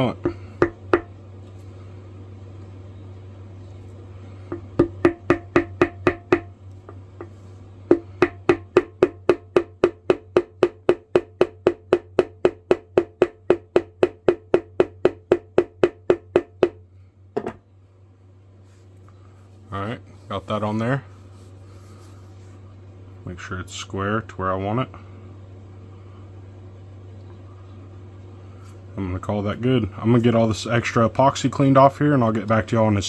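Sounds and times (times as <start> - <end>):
rubber mallet tapping: 0.2 - 1.1, 4.5 - 16.8.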